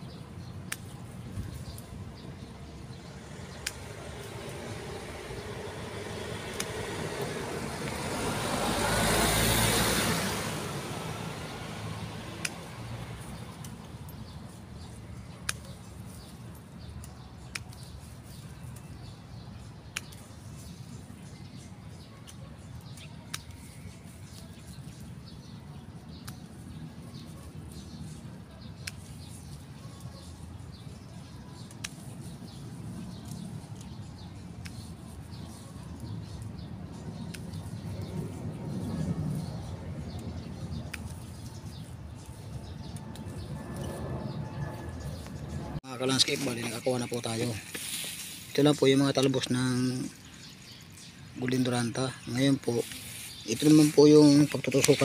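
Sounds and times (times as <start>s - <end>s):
pruning shears snipping: 0.6s - 1.9s, 3.5s - 8.2s, 12.2s - 19.2s, 19.9s - 20.9s, 22.2s - 25.2s, 26.2s - 29.8s, 31.6s - 44.4s, 50.7s - 55.0s.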